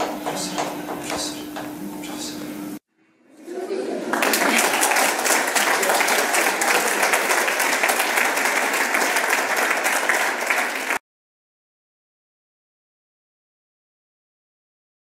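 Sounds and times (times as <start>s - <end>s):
audience applauding: 3.9s - 11.0s.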